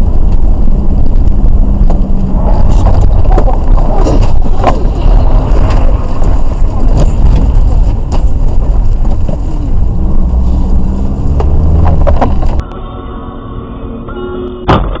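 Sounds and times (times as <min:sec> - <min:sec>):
wind on microphone: 0:00.0 - 0:12.6
car road and engine rumble: 0:00.0 - 0:15.0.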